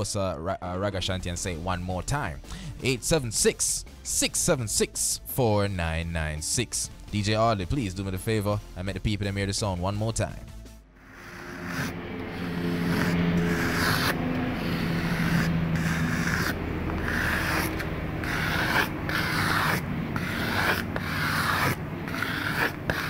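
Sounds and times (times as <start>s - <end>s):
low steady hum: 10.9s - 23.0s
rough rubbing strokes: 11.0s - 23.0s.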